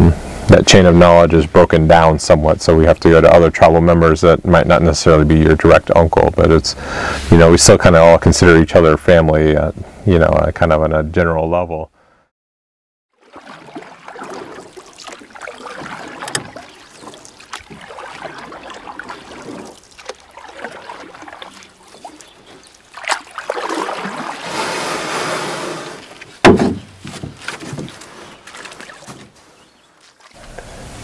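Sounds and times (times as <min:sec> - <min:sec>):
water splashing around canoe: 0:13.1 - 0:31.0
sharp knocks: 0:26.4 - 0:28.0.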